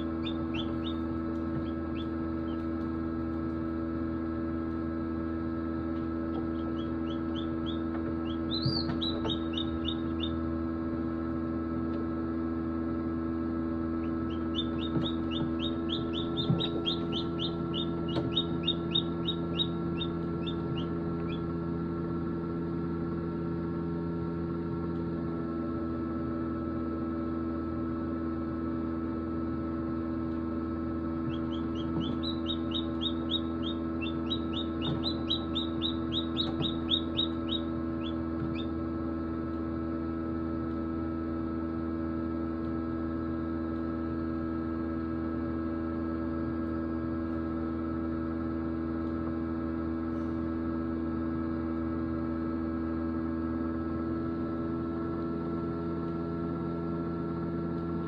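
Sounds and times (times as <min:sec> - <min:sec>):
hatchling peeping: 0:00.0 - 0:02.8, 0:06.3 - 0:10.5, 0:14.0 - 0:21.5, 0:31.2 - 0:38.8
incubator fan humming: 0:00.0 - 0:58.0.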